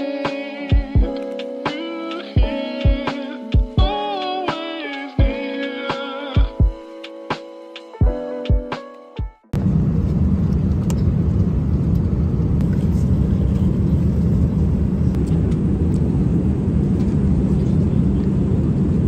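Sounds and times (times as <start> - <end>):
low rumble of moving vehicle: 9.6 - 19.0.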